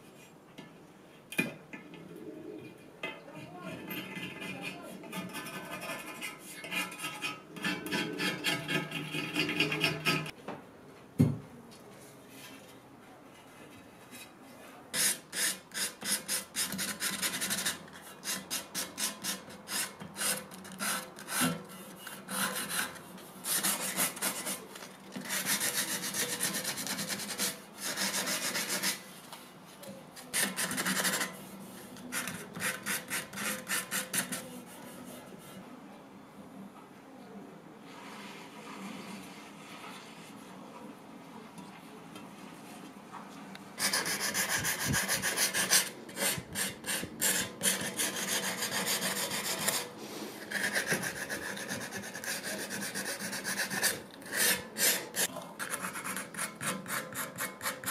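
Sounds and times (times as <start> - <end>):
knock: 11.2 - 11.4
sandpaper rubbing on wood: 22.3 - 29.1, 43.8 - 57.9
blade scraping wood finish: 43.8 - 57.9.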